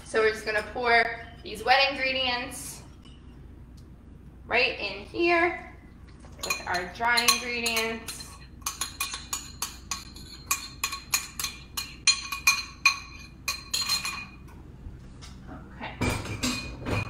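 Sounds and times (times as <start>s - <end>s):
spoon clinking in glass jug: 6.4s - 14.4s.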